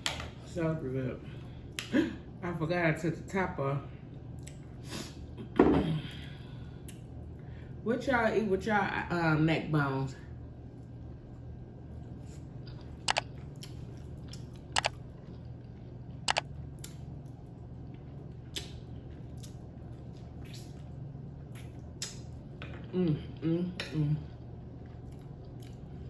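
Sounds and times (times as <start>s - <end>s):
chewing with lip smacks: 12.5s - 22.9s, 24.6s - 26.0s.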